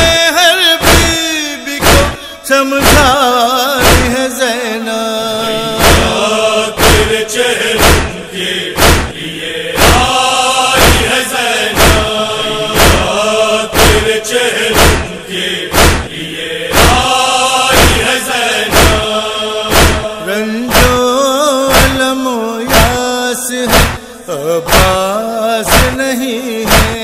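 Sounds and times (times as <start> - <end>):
male chorus chanting in unison: 0.0 - 27.0
chest-beating slaps: 0.8 - 1.2, 1.8 - 2.2, 2.8 - 3.2, 3.8 - 4.2, 5.8 - 7.2, 7.8 - 8.2, 8.8 - 9.2, 9.8 - 21.0, 21.7 - 22.1, 22.7 - 23.0, 23.7 - 24.1, 24.7 - 25.0, 25.7 - 27.0.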